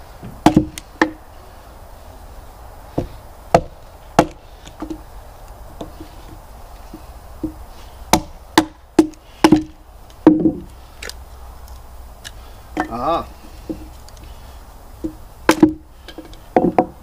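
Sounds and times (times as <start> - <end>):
wood splitting: 0.2 - 1.2, 3.0 - 5.0, 6.9 - 14.3, 15.0 - 17.0.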